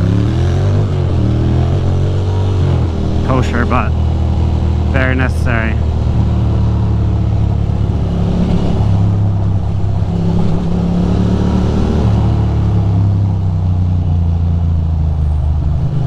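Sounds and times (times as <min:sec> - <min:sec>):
motorcycle engine running: 0:00.0 - 0:11.2.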